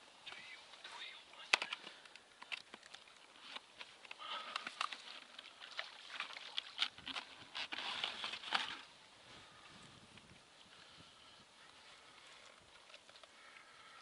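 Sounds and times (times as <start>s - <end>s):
keepnet rustling: 0.1s - 9.6s
fish flapping and splashing: 2.2s - 8.9s.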